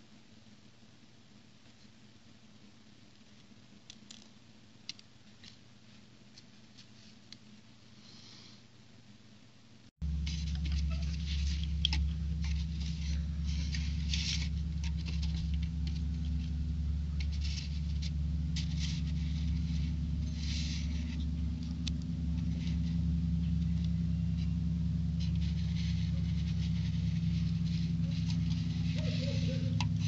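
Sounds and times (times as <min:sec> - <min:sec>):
steady low hum: 0:00.0 - 0:30.0
plastic pieces scratching and rustling: 0:10.1 - 0:24.6.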